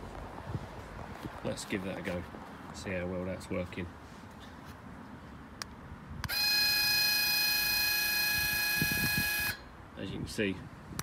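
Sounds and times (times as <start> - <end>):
electric motor whining: 6.3 - 9.6.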